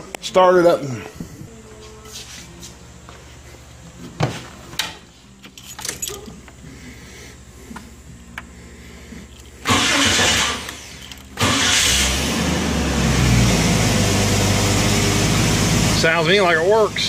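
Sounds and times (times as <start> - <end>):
car engine running: 8.0 - 17.0
starter motor cranking engine: 9.6 - 14.6.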